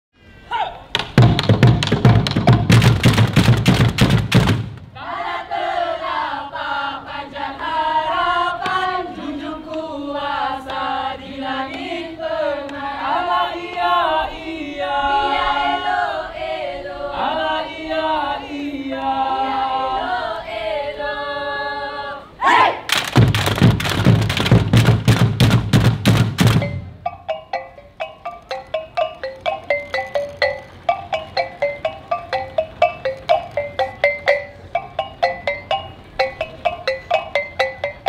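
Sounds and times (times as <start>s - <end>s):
rapid drum strikes: 0.9s - 5.0s, 22.9s - 38.0s
voices singing slow chant: 5.0s - 22.9s.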